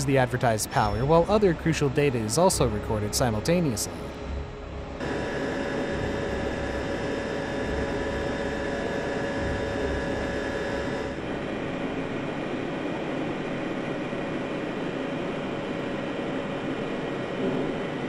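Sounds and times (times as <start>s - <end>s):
car engine running under load: 5.0s - 11.7s.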